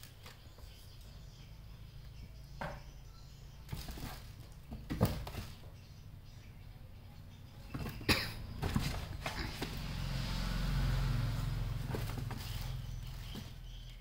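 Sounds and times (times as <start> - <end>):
cardboard knocks and rustles: 3.7 - 5.6, 7.7 - 9.8.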